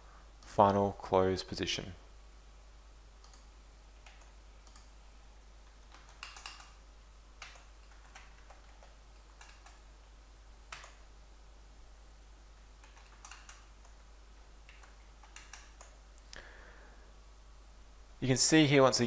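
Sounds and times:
computer mouse clicks: 0:03.2 - 0:04.9, 0:05.9 - 0:06.8, 0:07.4 - 0:09.8, 0:10.7 - 0:11.0, 0:12.8 - 0:14.0, 0:14.6 - 0:16.4
keyboard keystrokes: 0:03.2 - 0:04.9, 0:05.9 - 0:06.8, 0:07.4 - 0:09.8, 0:10.7 - 0:11.0, 0:12.8 - 0:14.0, 0:14.6 - 0:16.0.

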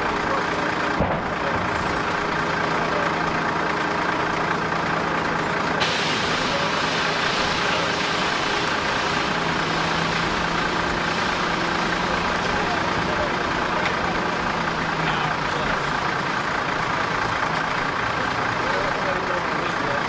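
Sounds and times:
fire burning: 0:00.2 - 0:19.8
loud hiss: 0:05.8 - 0:12.4.

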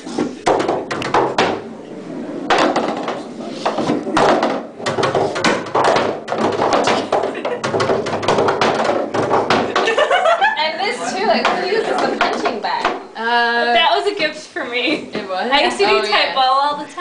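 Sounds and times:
balls rolling up wooden lane: 0:00.0 - 0:10.4, 0:11.1 - 0:13.0
balls knocking into scoring rings: 0:04.1 - 0:10.1.

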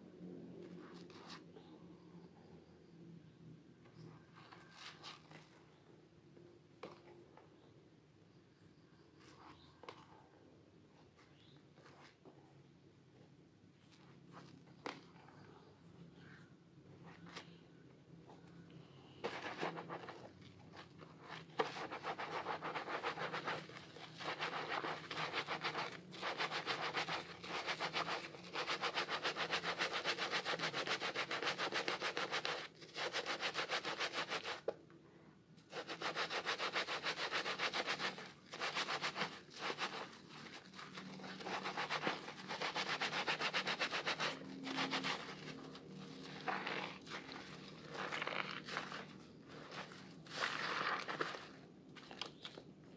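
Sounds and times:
soap rubbed between wet hands: 0:19.2 - 0:34.7, 0:35.7 - 0:52.6.

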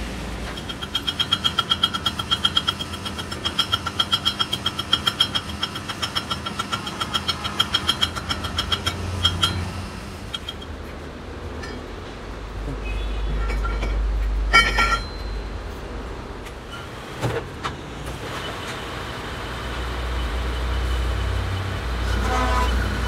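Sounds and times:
metallic tapping on steel tube: 0:00.4 - 0:10.7.

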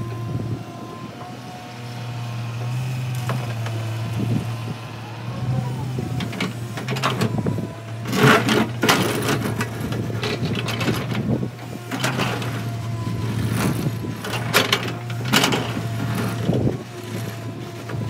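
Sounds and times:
excavator diesel engine running: 0:00.0 - 0:18.0
rock and soil scraping and clattering: 0:08.0 - 0:18.0.

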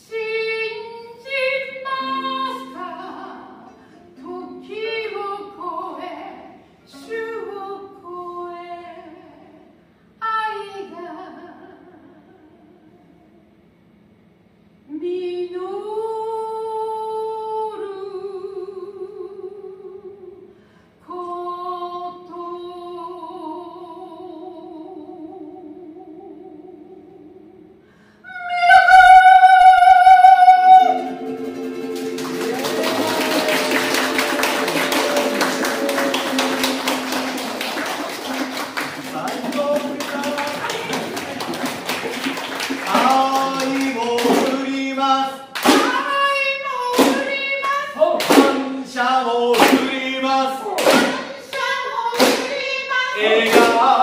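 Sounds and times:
person singing with vibrato: 0:00.0 - 0:09.6, 0:15.0 - 0:41.0, 0:42.8 - 0:54.0
held final chord: 0:31.0 - 0:39.0
applause: 0:31.3 - 0:44.6.

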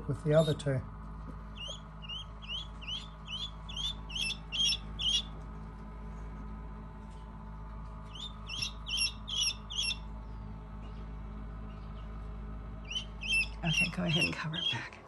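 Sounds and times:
chick peeping: 0:00.3 - 0:00.6, 0:01.5 - 0:05.4, 0:08.0 - 0:14.9.

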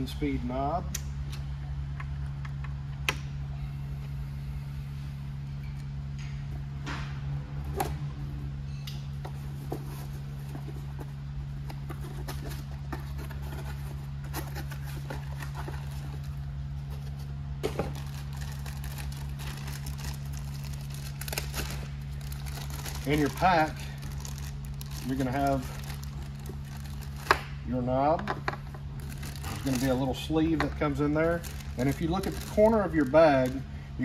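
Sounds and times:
steady low hum: 0:00.0 - 0:34.0
cardboard and packaging rustling: 0:09.3 - 0:27.4, 0:29.0 - 0:33.6.

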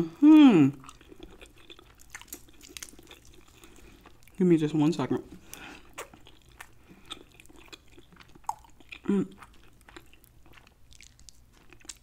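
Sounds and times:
person humming: 0:00.0 - 0:00.8, 0:09.1 - 0:09.3
chewing and wet mouth sounds: 0:00.7 - 0:12.0.

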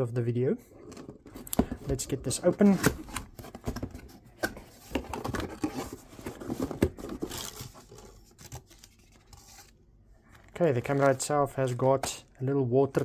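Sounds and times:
packing paper rustling: 0:04.6 - 0:12.0.

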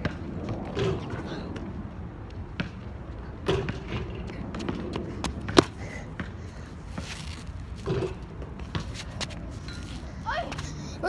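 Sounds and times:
basketball thumping: 0:03.4 - 0:06.4.

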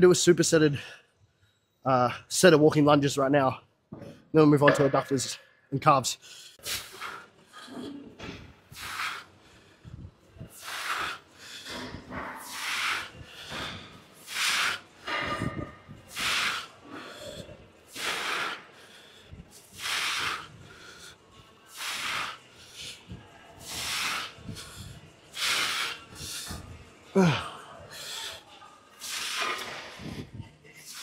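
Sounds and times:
man breathing quietly: 0:08.7 - 0:14.8, 0:15.9 - 0:28.7.

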